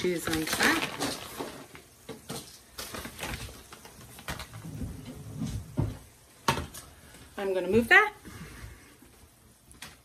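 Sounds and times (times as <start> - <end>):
plastic bag handling: 0.0 - 5.6.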